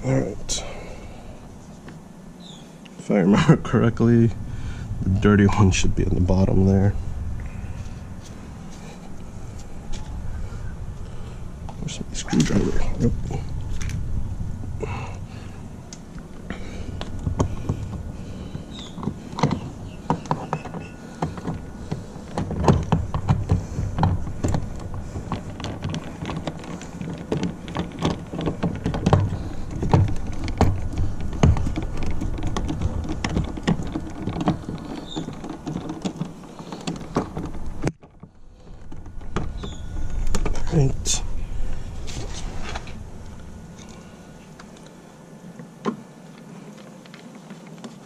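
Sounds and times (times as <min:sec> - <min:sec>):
low steady rumble: 0:00.0 - 0:47.2
sharp clicks and knocks: 0:11.0 - 0:45.0.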